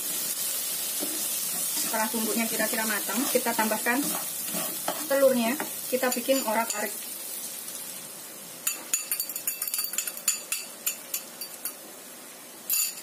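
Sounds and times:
faint sizzling in wok: 0.0 - 13.0
metal clinks against wok: 8.6 - 11.8, 12.7 - 13.0.

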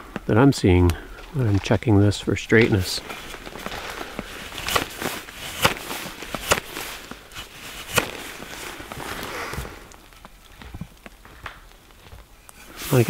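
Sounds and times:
knife scraping wood: 4.2 - 8.9.

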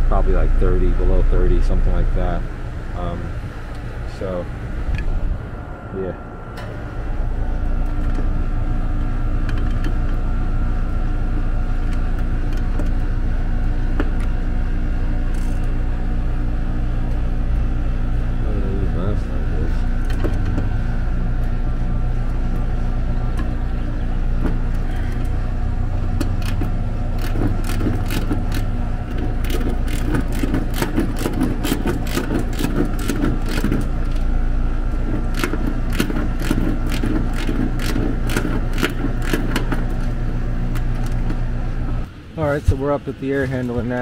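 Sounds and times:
air conditioner unit humming: 0.0 - 44.0.

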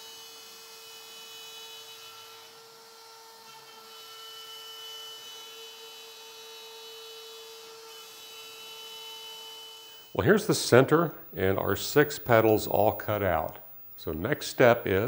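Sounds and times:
router motor cutting wood: 0.0 - 10.2.

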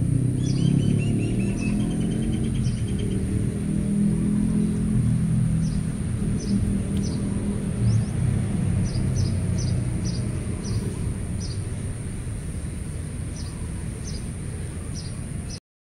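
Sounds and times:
high bird chirps: 0.4 - 3.4, 5.6 - 11.7
low rumble: 1.0 - 14.7.

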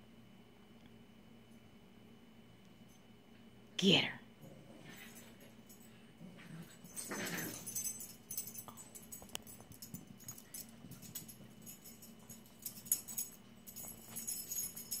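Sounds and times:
dog collar tags jingling: 6.7 - 15.0.

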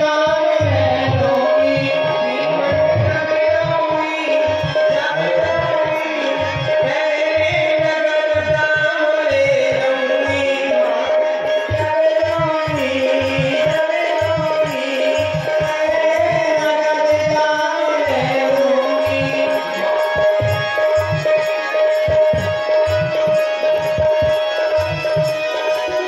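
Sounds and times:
devotional song melody: 0.0 - 26.0.

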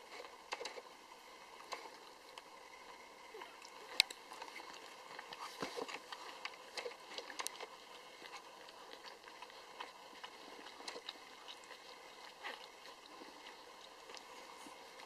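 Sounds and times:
puppies suckling: 3.3 - 15.0.

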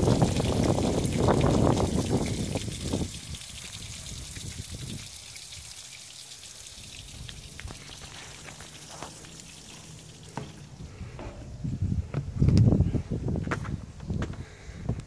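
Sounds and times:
hose water spraying: 0.0 - 11.7.

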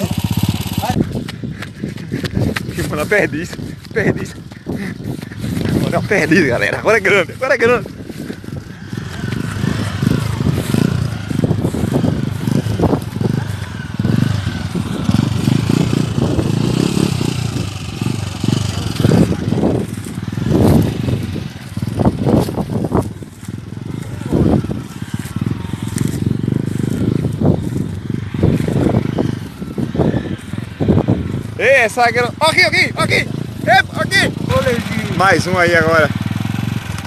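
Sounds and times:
small motorcycle engine: 0.0 - 37.0.

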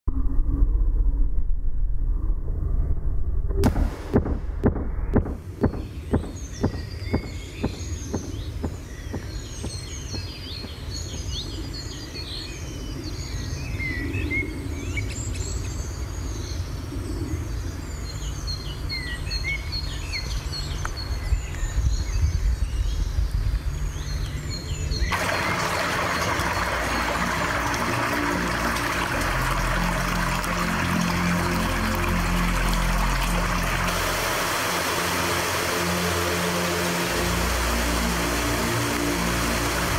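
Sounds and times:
low rumble: 0.0 - 11.8
stream rushing over stones: 5.2 - 11.3, 25.1 - 39.9
small birds chirping: 5.2 - 34.6.

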